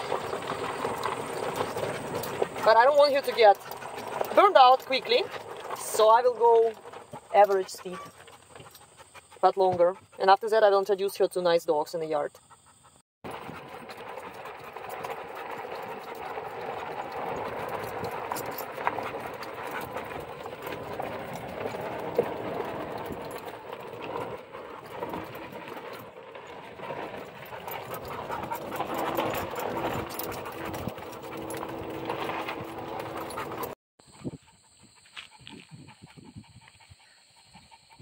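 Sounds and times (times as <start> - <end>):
tyres crunching on gravel: 0.0 - 8.2
dog panting: 0.0 - 11.2, 12.1 - 26.1, 26.7 - 38.0.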